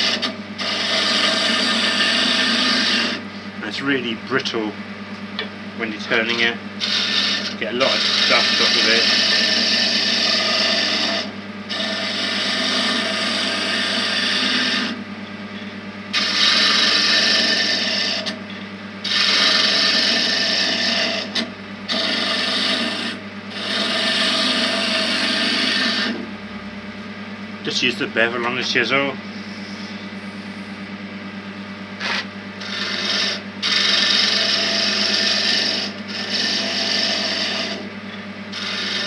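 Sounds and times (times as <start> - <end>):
gouge cutting wood on lathe: 0.0 - 3.2, 5.9 - 15.0, 16.1 - 18.4, 19.0 - 26.3, 32.0 - 37.9, 38.5 - 39.0
lathe motor hum: 0.0 - 39.0.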